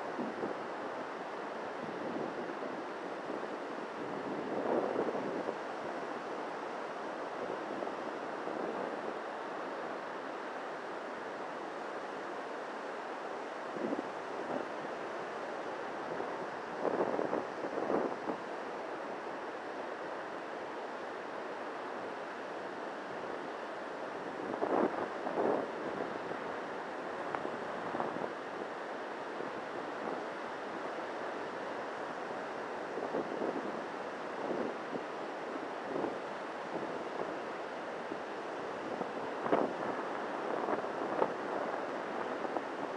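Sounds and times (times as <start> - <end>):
wind on microphone: 0.0 - 10.0, 13.4 - 19.5, 23.0 - 42.9
surf breaking on beach: 21.7 - 42.9.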